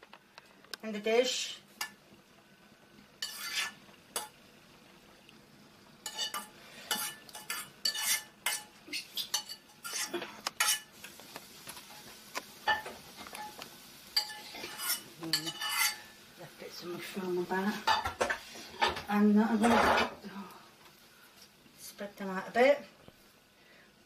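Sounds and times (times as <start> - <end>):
metal spoon scraping metal pan: 3.2 - 4.3, 6.0 - 11.2, 14.2 - 16.1.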